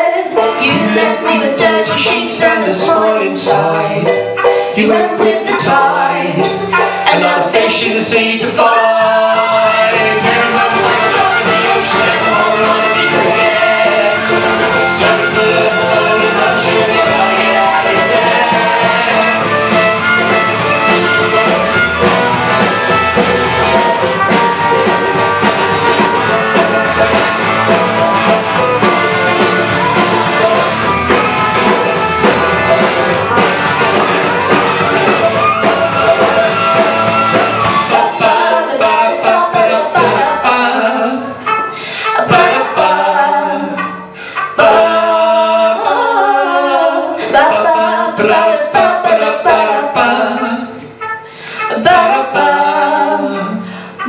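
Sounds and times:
women singing: 0:00.0 - 0:20.2, 0:35.1 - 0:41.4, 0:42.2 - 0:50.9, 0:51.7 - 0:54.0
live band playing: 0:00.0 - 0:46.0, 0:47.1 - 0:54.0
strummed acoustic guitars: 0:00.2 - 0:42.9.

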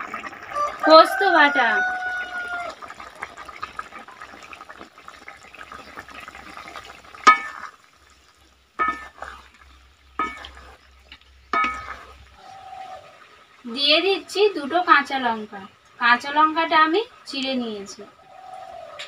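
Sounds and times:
curry bubbling in a wok: 0:00.0 - 0:19.0
utensil knocking on wok: 0:07.2 - 0:07.7, 0:08.8 - 0:09.4, 0:10.2 - 0:10.7, 0:11.5 - 0:12.1.

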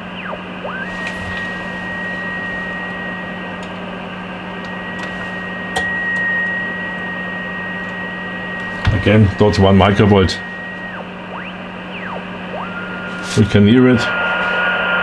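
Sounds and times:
radio receiver hiss: 0:00.0 - 0:15.0
thin steady whistle: 0:00.0 - 0:15.0.

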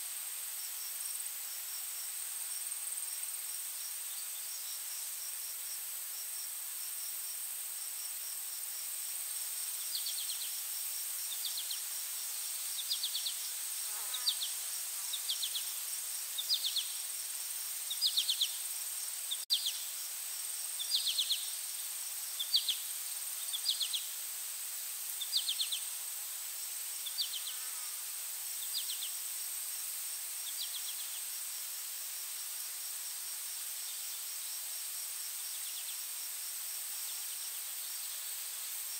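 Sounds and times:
cricket chirps: 0:00.0 - 0:38.9
insect drone: 0:00.0 - 0:38.9.

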